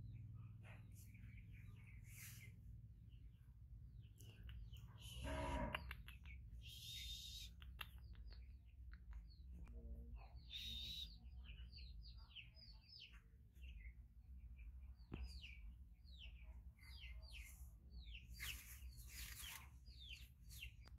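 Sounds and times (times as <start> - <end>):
faint small birds chirping: 0.0 - 21.0
brief rustling: 18.4 - 19.8.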